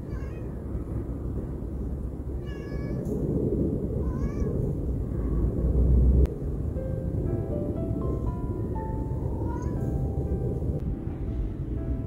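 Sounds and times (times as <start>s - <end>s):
cat meowing: 0.0s - 0.6s, 2.4s - 3.0s, 4.0s - 4.6s, 9.4s - 10.0s.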